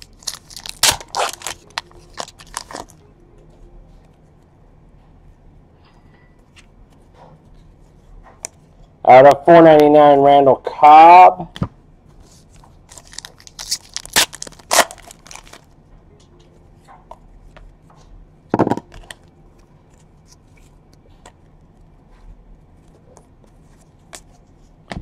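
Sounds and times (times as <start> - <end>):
foil pack tearing and crinkling: 0.0 - 2.9, 12.9 - 15.7
cards clicking and rustling: 0.0 - 3.0.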